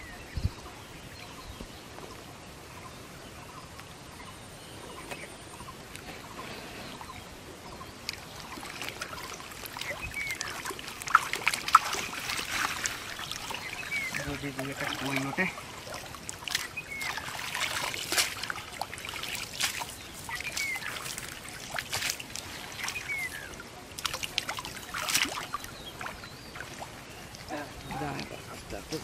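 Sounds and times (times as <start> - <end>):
water sloshing and trickling: 6.2 - 29.0
sharp water splashes: 8.0 - 28.1.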